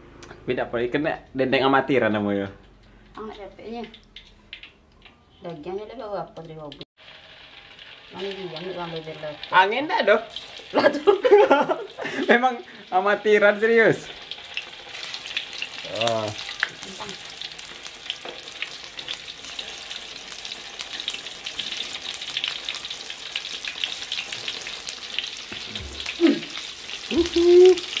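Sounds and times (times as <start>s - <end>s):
meat sizzling in hot oil: 3.7s - 4.8s, 7.0s - 28.0s.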